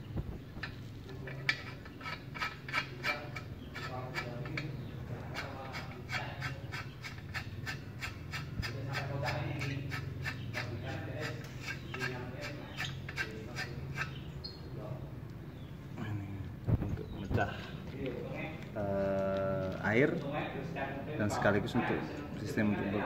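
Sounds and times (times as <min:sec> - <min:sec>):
metallic clicking and scraping: 0:00.5 - 0:14.6.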